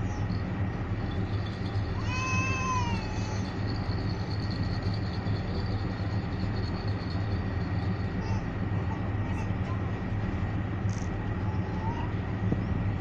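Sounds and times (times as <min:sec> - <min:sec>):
distant train rumble: 0:00.0 - 0:13.0.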